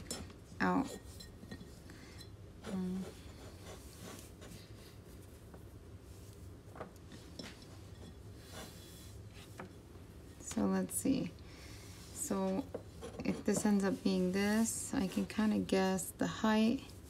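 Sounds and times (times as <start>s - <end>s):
rope rubbing on pot: 2.6s - 5.4s, 11.9s - 17.0s.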